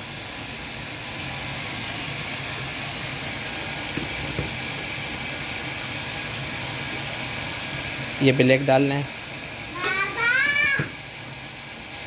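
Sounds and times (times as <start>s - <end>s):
running machinery hum and hiss: 0.0s - 12.0s.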